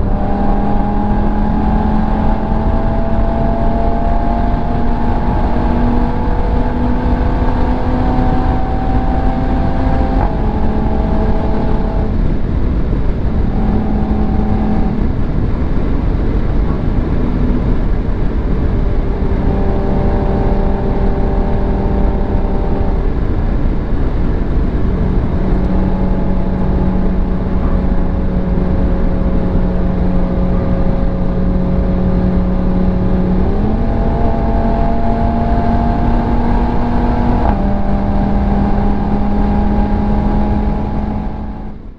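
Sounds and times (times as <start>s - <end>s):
droning engine hum: 0.0s - 41.9s
tyre and wind noise: 0.0s - 41.9s.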